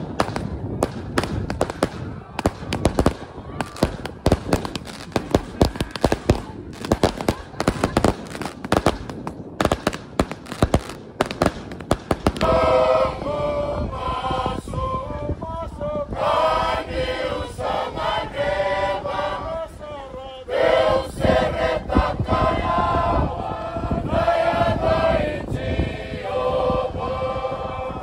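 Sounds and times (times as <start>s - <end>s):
fireworks crackling and popping: 0.0s - 12.6s
group singing in unison: 12.4s - 28.0s.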